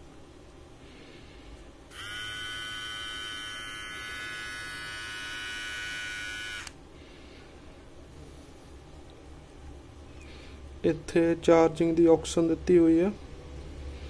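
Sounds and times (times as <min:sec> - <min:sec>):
hair trimmer motor buzzing: 0:01.9 - 0:06.8.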